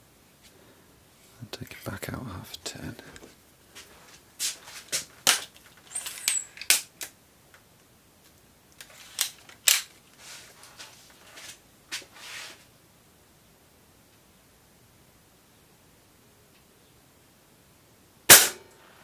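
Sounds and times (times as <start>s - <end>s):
soft scraping: 10.2s - 12.7s.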